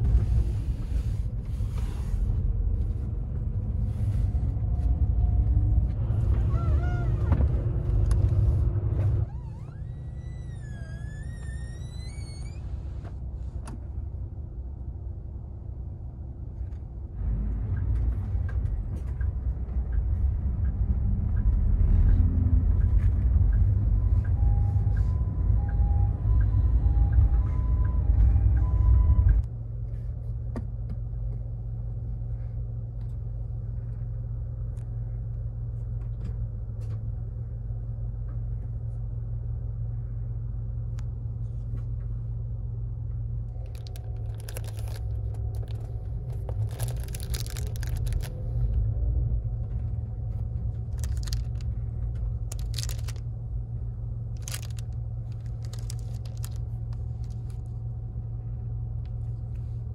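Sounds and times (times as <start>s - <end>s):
bus engine rumble: 0.0s - 59.9s
plastic packets crinkling: 43.6s - 48.5s, 50.9s - 51.7s, 52.4s - 53.2s, 54.4s - 57.7s.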